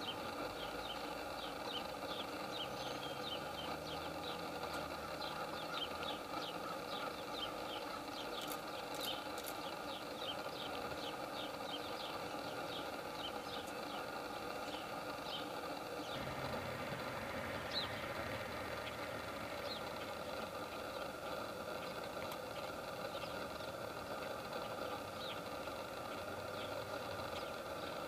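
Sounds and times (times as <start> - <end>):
motor hum: 0.0 - 28.0
high falling bird chirps: 5.1 - 21.2
deeper hum: 16.1 - 23.4.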